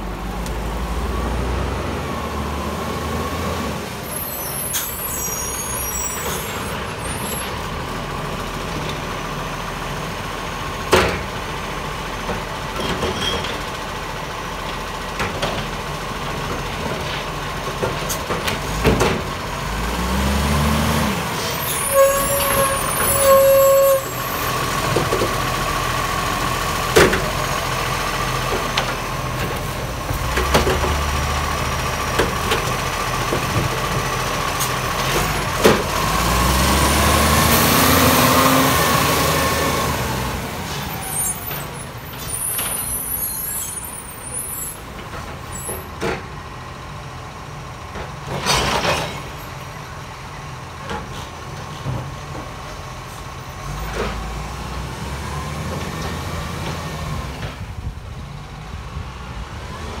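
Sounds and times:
garbage truck diesel engine revving: 0.0 - 4.2, 13.7 - 50.7, 52.8 - 57.6.

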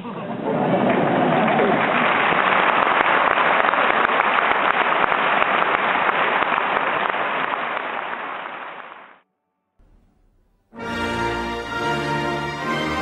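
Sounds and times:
audience applauding: 0.3 - 9.2.

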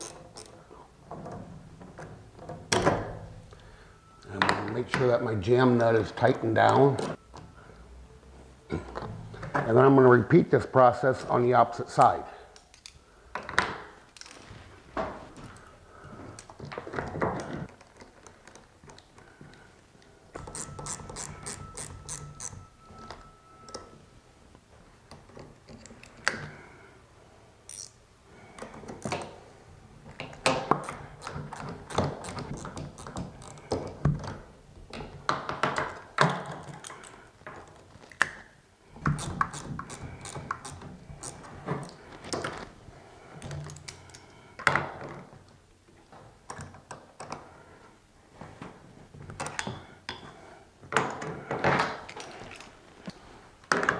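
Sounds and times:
wrench clicking on metal: 20.4 - 22.6, 27.7 - 28.0
tools knocking and scraping metal: 20.4 - 24.0.

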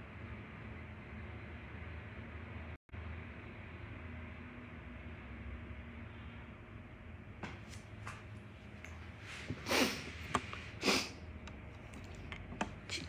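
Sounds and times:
loud sniffs: 9.3 - 11.2.

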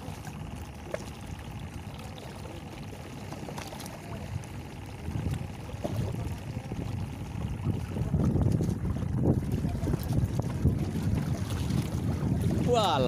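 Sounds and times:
sea water lapping against concrete: 0.0 - 13.0
wind buffeting microphone: 5.0 - 13.0.

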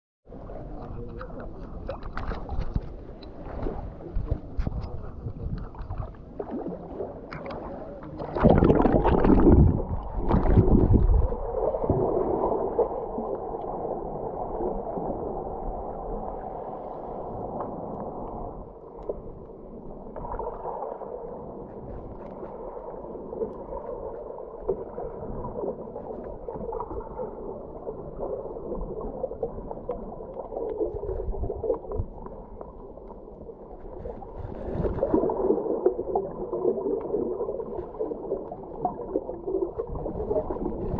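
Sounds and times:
muffled underwater sloshing: 0.3 - 40.9
water splashing: 1.1 - 14.2, 33.8 - 40.9.

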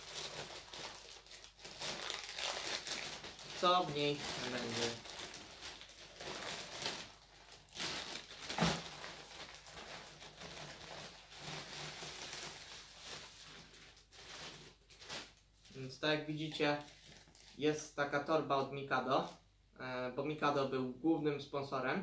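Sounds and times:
plastic bag rustling and crinkling: 0.0 - 17.6.

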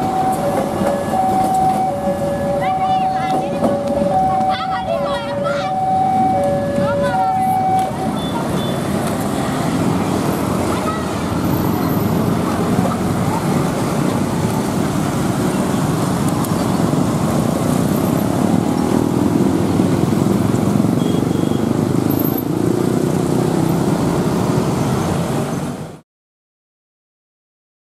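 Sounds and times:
train passing: 0.0 - 21.0
motorcycle and car engines: 0.0 - 26.0.

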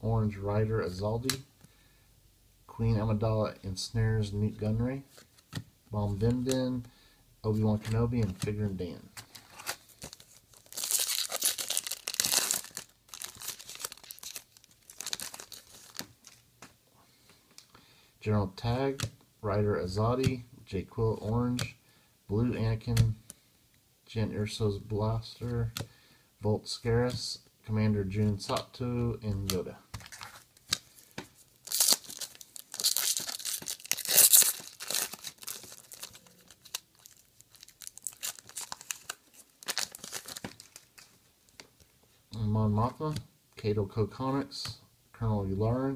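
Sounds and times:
foil and cards rustling: 9.1 - 16.4, 29.9 - 41.2
foil wrapper tearing and crinkling: 9.5 - 16.1, 31.6 - 41.1.

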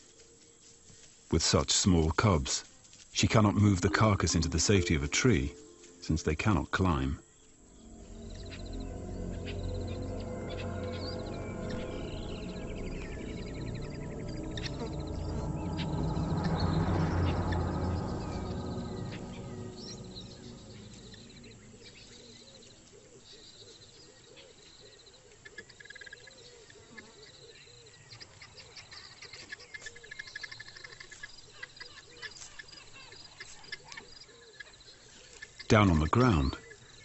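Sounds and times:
insect trills: 0.0 - 23.0
low background music: 3.2 - 22.7
birds chirping: 3.2 - 23.4.

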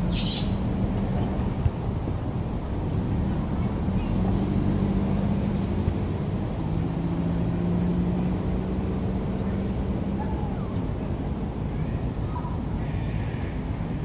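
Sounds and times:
motor engines droning: 0.0 - 14.0
bird chirp: 0.1 - 0.6.

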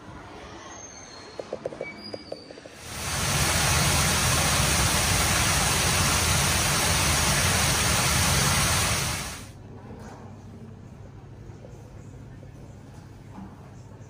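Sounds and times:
water splashing down cascade: 2.8 - 9.5.

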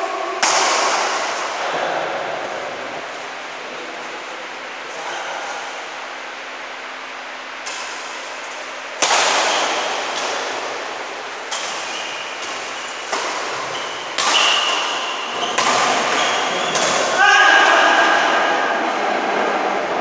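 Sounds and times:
badminton rackets striking shuttlecock: 0.4 - 1.6, 7.6 - 17.4.

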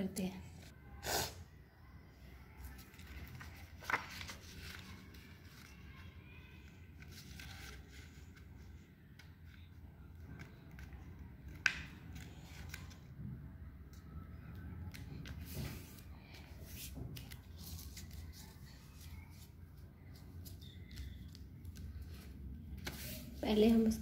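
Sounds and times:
paper rustling and crinkling: 2.6 - 6.1, 6.9 - 9.6, 14.9 - 24.0.

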